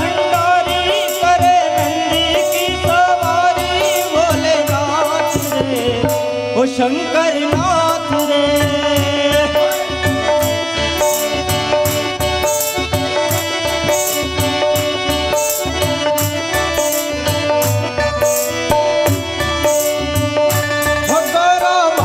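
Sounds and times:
keyboard melody: 0:00.0 - 0:22.0
tabla rhythm: 0:00.0 - 0:22.0
sharp high percussion strokes: 0:09.7 - 0:22.0.

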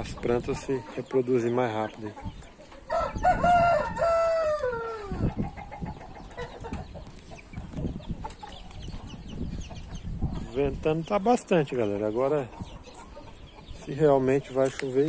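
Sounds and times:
wind buffeting microphone: 0:00.0 - 0:00.9, 0:02.1 - 0:14.7
rooster crowing: 0:02.9 - 0:05.3.

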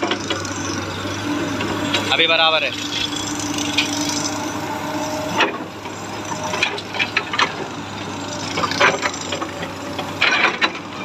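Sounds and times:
excavator engine humming: 0:00.0 - 0:11.0
hydraulic whine: 0:00.0 - 0:11.0
sharp clicks and knocks: 0:08.5 - 0:11.0.

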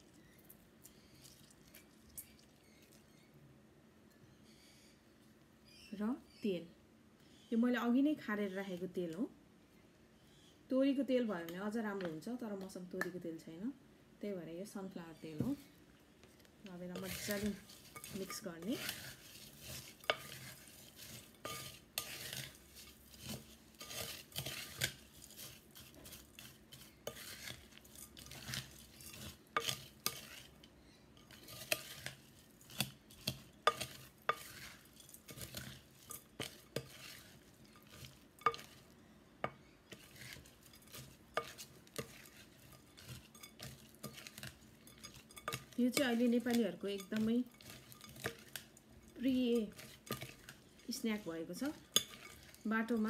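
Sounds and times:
spatula scraping and rustling food: 0:00.0 - 0:03.3, 0:15.1 - 0:53.0.

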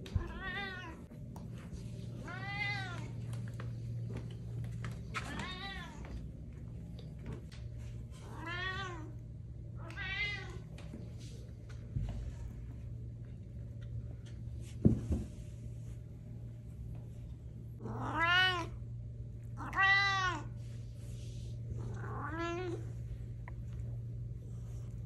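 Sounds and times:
low hum: 0:00.0 - 0:19.8, 0:20.4 - 0:25.0
cat meowing: 0:17.8 - 0:18.7.

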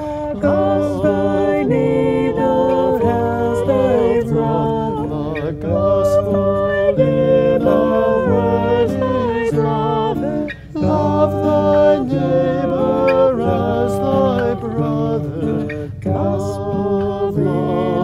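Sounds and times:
strummed acoustic guitar: 0:00.0 - 0:18.0
woman and man singing: 0:00.0 - 0:18.0.

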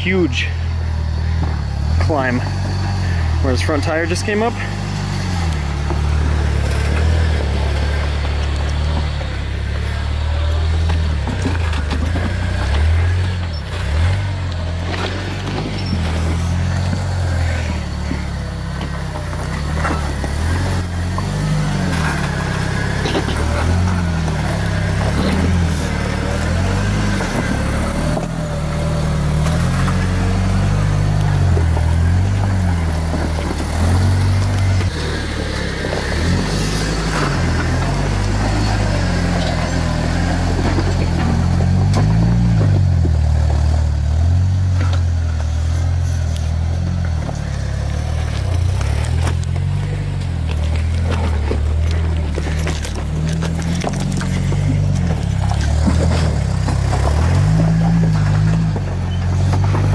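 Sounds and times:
engine revving: 0:00.0 - 0:59.9.

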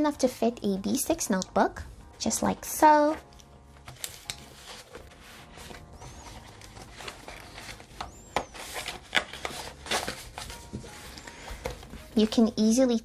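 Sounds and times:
notebook pages rustling: 0:03.0 - 0:12.8.

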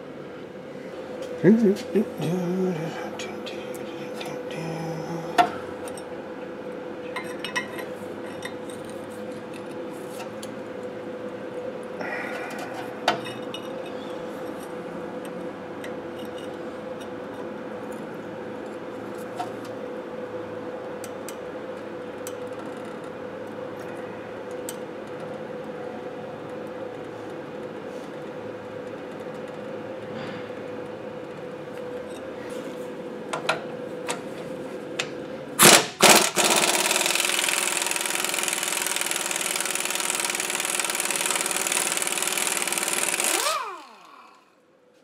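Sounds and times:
steady hum: 0:00.0 - 0:22.2.

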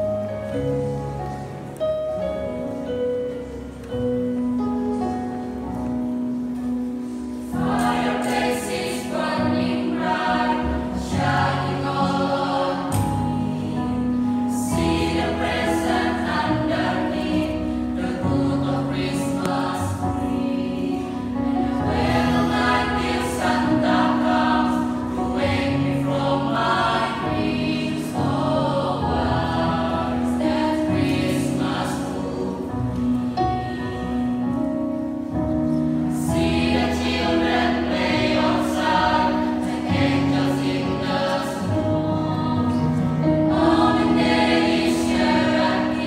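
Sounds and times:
choir singing: 0:07.4 - 0:34.2, 0:36.1 - 0:46.0.

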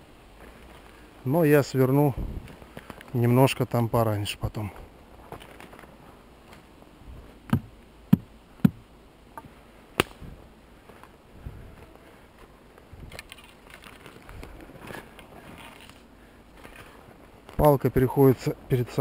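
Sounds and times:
footsteps rustling on forest floor: 0:00.3 - 0:03.6, 0:04.5 - 0:07.7, 0:09.4 - 0:18.5
sharp cracks of twigs: 0:02.4 - 0:03.2, 0:05.3 - 0:06.7, 0:09.9 - 0:10.4, 0:12.8 - 0:17.7.

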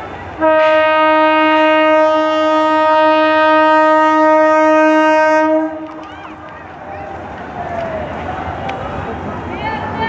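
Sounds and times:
locomotive horn blast: 0:00.4 - 0:06.4.

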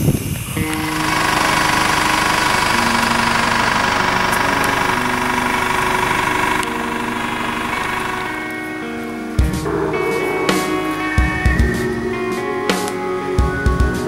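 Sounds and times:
engine idling: 0:00.5 - 0:08.8.

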